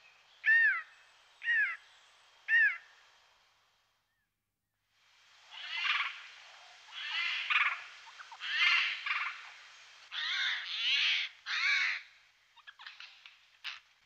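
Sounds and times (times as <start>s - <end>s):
jay calling: 6.9s - 9.5s, 10.1s - 12.1s.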